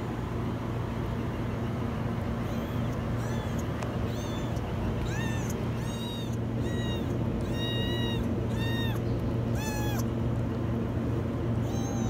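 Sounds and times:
steady low hum: 0.0s - 12.0s
kittens meowing: 2.4s - 10.1s, 11.5s - 12.0s.

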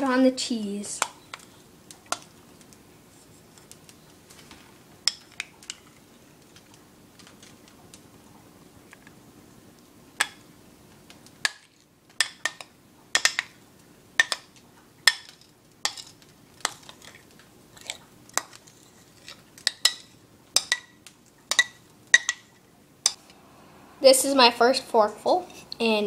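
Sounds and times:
metal spoon scraping a bowl: 25.4s - 25.8s.

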